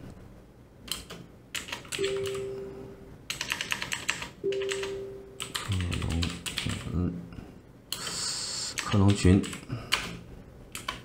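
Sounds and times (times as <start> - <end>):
computer keyboard typing: 0.9 - 2.6, 3.3 - 7.0, 8.0 - 11.0
steady held tones: 2.0 - 3.2, 4.4 - 5.7.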